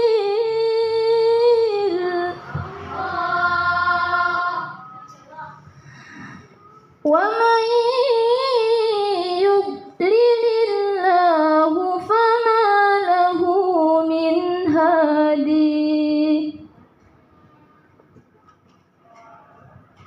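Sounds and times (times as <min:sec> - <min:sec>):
woman reciting melodically: 0:00.0 - 0:05.8, 0:06.6 - 0:16.7.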